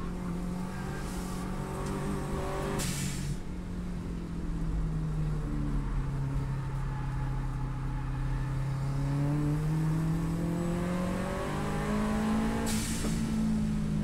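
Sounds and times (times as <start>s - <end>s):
car engine accelerating hard: 0.0s - 3.2s, 5.6s - 14.0s
short turbo hiss: 2.8s - 3.4s.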